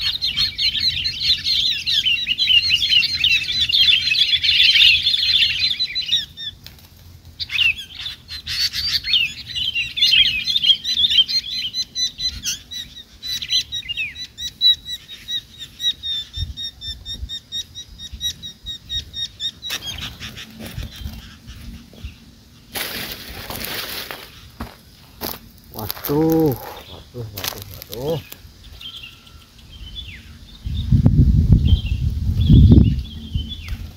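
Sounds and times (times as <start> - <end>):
bulbuls chirping: 0.0 - 33.9
bird wings flapping: 6.6 - 7.4.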